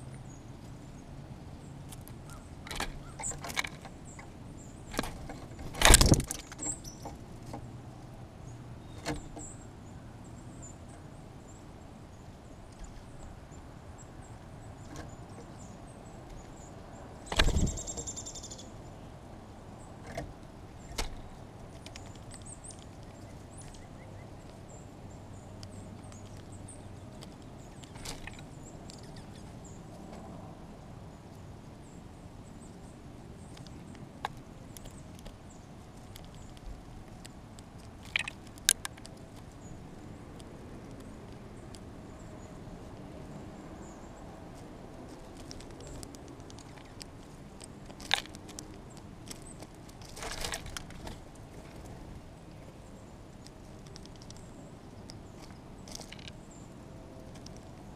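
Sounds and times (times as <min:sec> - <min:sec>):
birds knocking on a feeder: 0:17.2 - 0:18.4, 0:38.0 - 0:39.2
faint high bird chips: 0:17.3 - 0:18.8.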